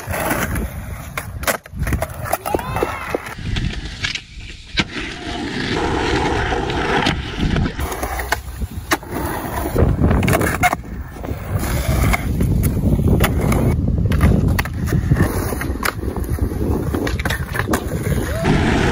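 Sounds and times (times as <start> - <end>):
skateboard clacks: 0.0 - 4.9
skateboard wheels rolling on concrete: 0.0 - 18.9.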